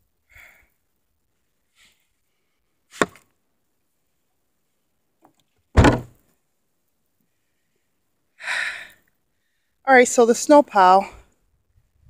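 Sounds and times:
heavy thud: 5.8s - 6.2s.

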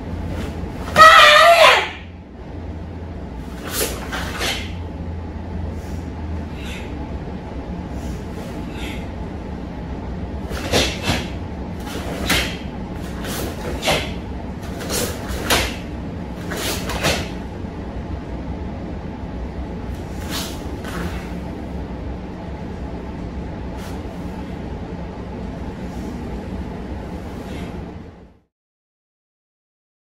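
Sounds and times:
low room hum: 0.0s - 28.5s
swishes and snaps of punches: 10.5s - 14.2s, 14.8s - 15.8s.

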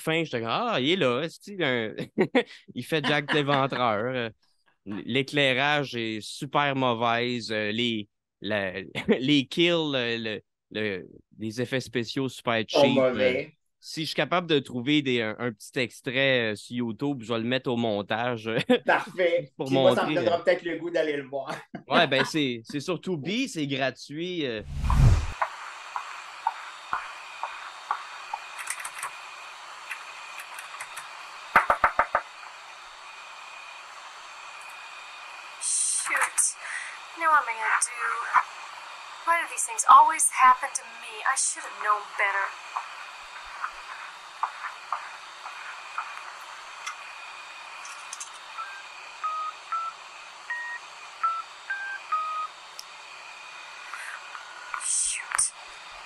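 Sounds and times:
film soundtrack hiss: 0.0s - 4.3s, 4.9s - 15.4s, 16.0s - 23.9s, 24.6s - 56.0s.

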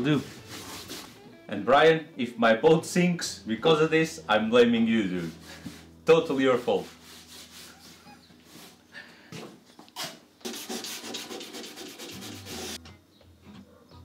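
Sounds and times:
hand sanding wood: 0.2s - 1.1s, 5.2s - 8.8s, 10.4s - 12.8s.

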